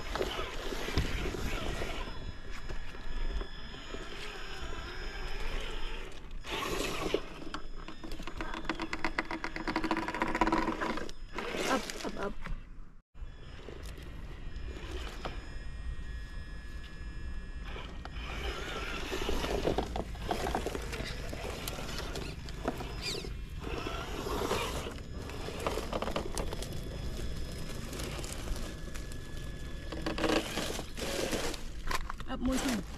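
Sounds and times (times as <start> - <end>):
toy car motor whirring and grinding: 0.0 - 12.4, 13.4 - 32.9
tyres and chassis scraping: 17.6 - 32.9.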